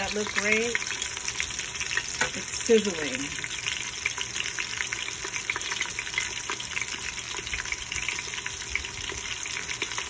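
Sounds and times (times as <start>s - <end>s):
food deep-frying in oil: 0.0s - 10.0s.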